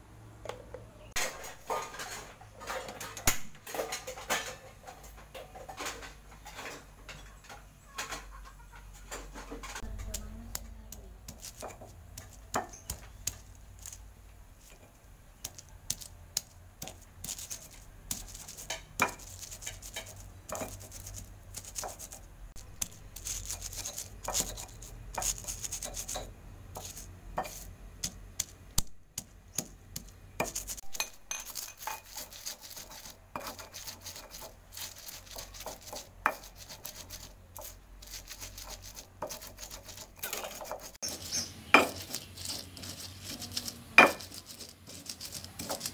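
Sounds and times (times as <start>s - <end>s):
stone pestle rubbing: 9.8s - 45.9s
stone pestle knocking on stone: 18.1s - 19.3s, 41.8s - 42.2s, 44.0s - 44.4s.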